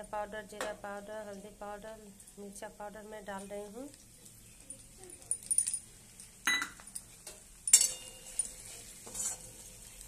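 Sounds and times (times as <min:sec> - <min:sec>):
spoon clinking on steel cookware: 0:06.5 - 0:09.5.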